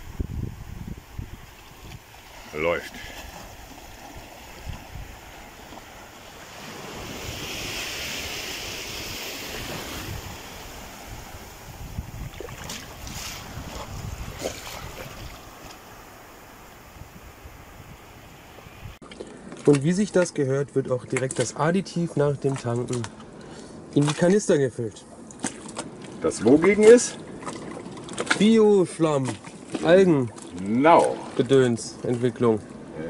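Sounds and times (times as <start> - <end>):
surf washing over sandy beach: 0.0 - 19.0
wind buffeting the microphone: 0.0 - 19.0
short water splashes: 1.2 - 16.2, 22.2 - 32.8.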